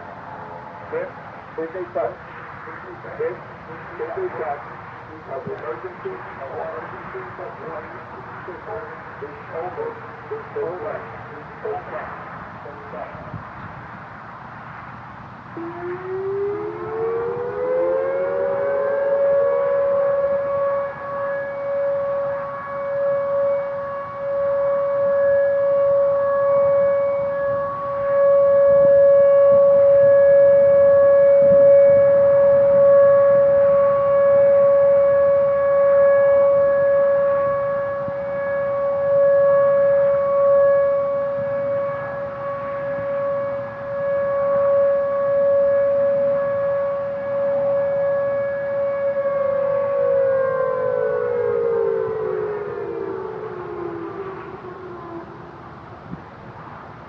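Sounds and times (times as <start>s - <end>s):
electronic siren tone: 15.6s - 55.7s.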